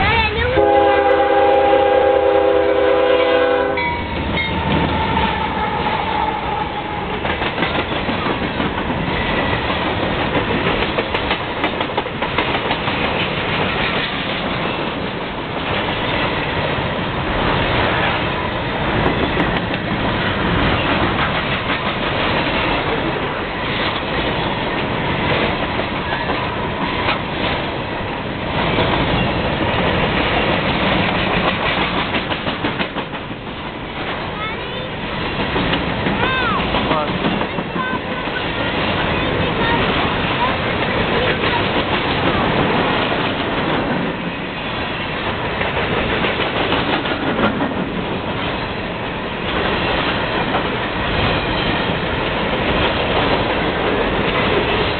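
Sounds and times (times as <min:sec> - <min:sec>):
train horn: 0:00.0 - 0:07.2
train wheels clattering over rails: 0:01.0 - 0:54.9.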